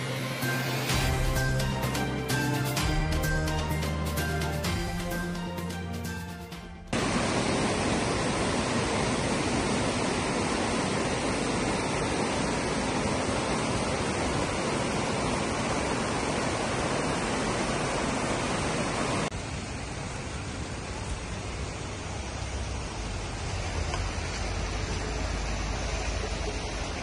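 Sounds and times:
water rushing over rocks: 6.9 - 27.0.

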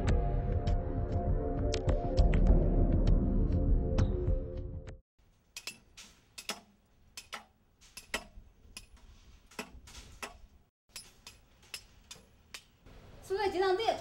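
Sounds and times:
metallic clinks on steel rebar: 5.5 - 12.8.

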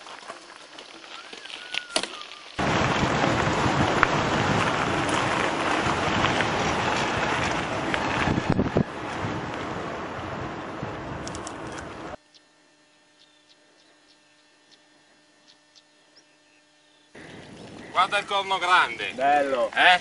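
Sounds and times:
bike tyre noise: 0.0 - 12.2
wind rushing over microphone: 2.6 - 12.2.

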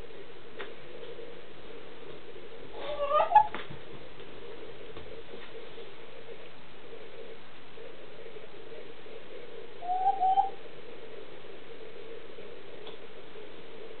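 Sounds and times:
steady hum: 0.0 - 14.0
hen calling: 2.8 - 3.6, 9.8 - 10.6.

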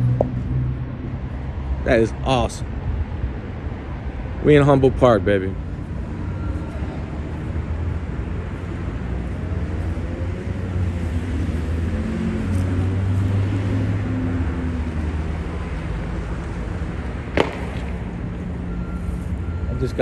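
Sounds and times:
sharp bang: 17.3 - 18.2.

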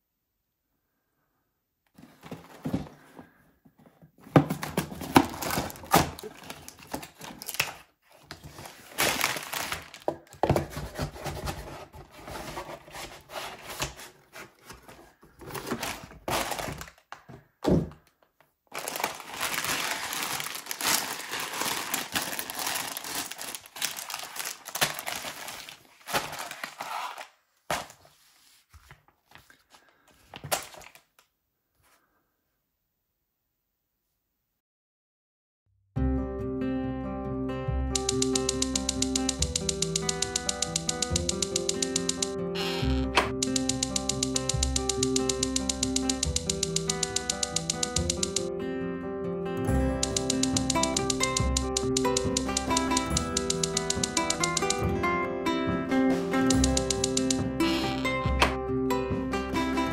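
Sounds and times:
cardboard flaps tearing: 4.3 - 17.1, 18.8 - 28.1
plastic bags crinkling: 4.8 - 10.4, 15.0 - 17.3, 18.7 - 28.1.

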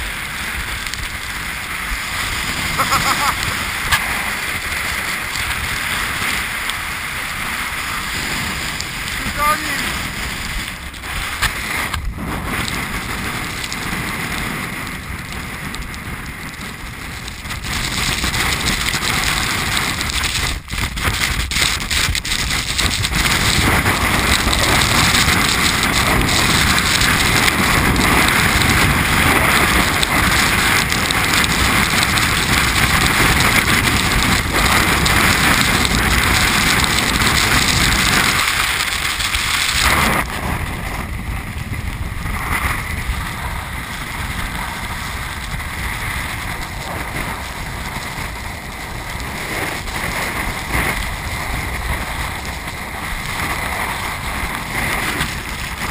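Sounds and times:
strong wind on microphone: 0.0 - 55.9.

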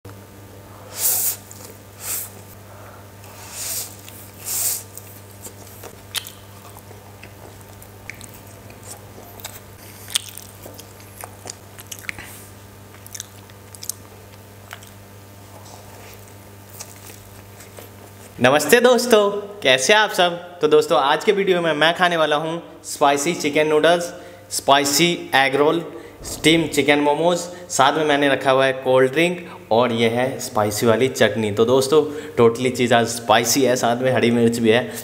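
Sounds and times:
steady low hum: 0.1 - 35.0
wet chewing: 3.9 - 15.0, 15.7 - 18.4.

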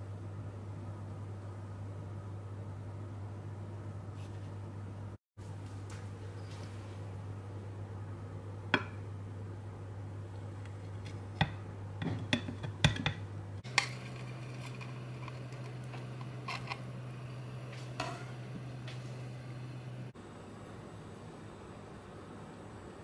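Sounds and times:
steady low hum: 0.0 - 23.0
knife tapping ceramic plate: 8.8 - 9.0, 11.4 - 14.0
knife slicing jelly: 12.4 - 16.9.

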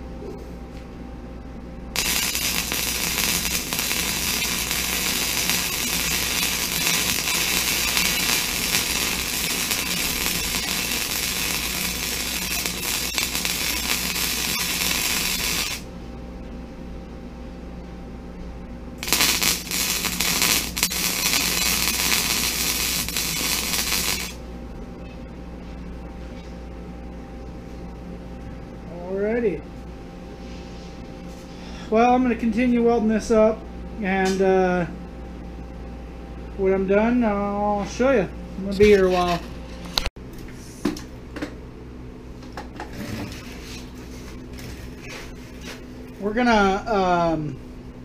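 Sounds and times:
steady low hum: 0.0 - 48.0
welding arc crackling: 1.9 - 15.9, 19.0 - 24.4.

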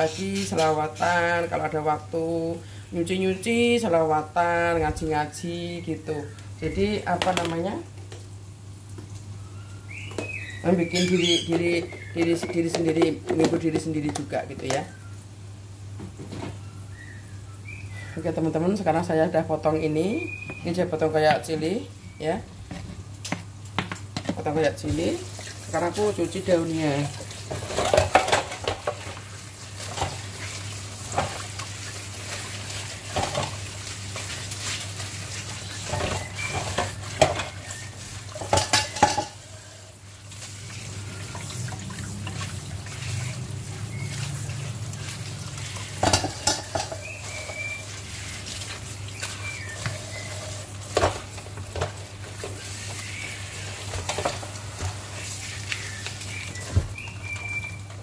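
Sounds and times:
bird chirping: 9.4 - 12.6, 16.6 - 18.3, 20.2 - 20.8, 43.2 - 44.4, 46.5 - 48.3, 49.1 - 50.6, 55.8 - 57.8
dishes and utensils clattering: 27.5 - 29.2, 35.8 - 37.7, 38.3 - 39.4, 45.6 - 47.7.

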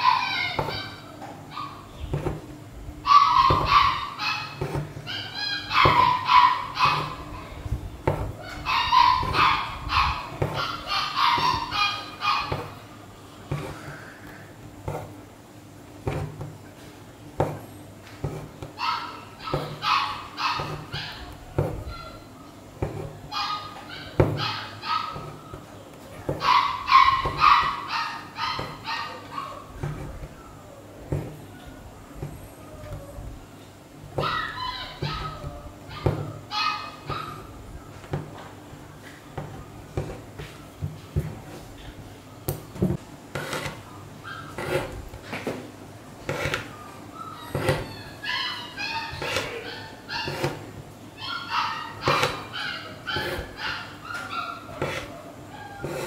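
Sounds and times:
dog yapping: 0.0 - 1.9, 3.0 - 12.8, 18.8 - 22.3, 23.2 - 30.8, 34.2 - 37.6, 44.2 - 44.8, 46.7 - 56.0.

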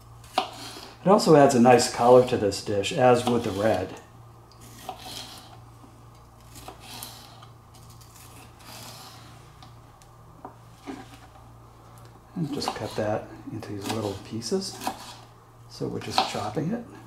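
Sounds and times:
steady low hum: 0.0 - 17.0
knife slicing pepper: 3.0 - 3.9, 12.4 - 15.3.

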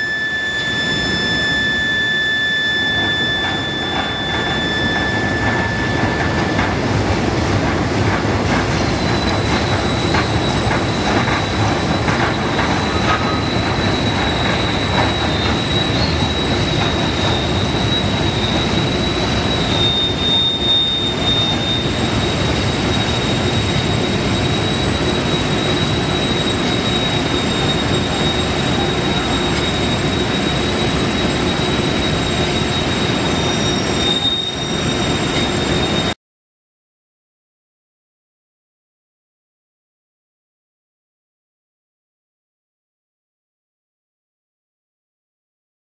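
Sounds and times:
high machine whine: 0.0 - 36.2
rolling mill mechanical din: 0.0 - 36.2.

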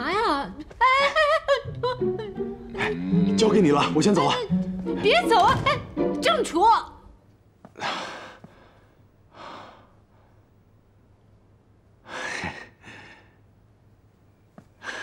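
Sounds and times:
person sighing breaths: 7.8 - 9.9.

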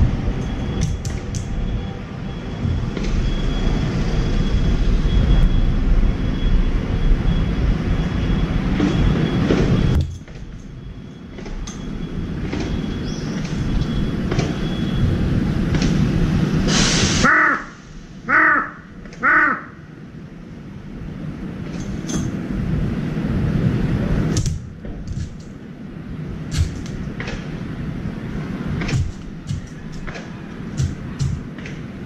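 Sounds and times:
low background rumble: 0.0 - 16.7
crow cawing: 17.3 - 19.9.

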